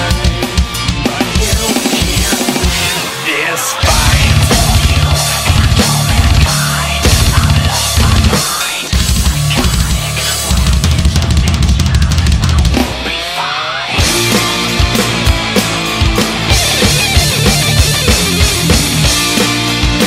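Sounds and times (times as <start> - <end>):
heavy metal backing track: 0.0 - 20.0
fast kick drum strokes: 3.8 - 13.0, 14.0 - 20.0.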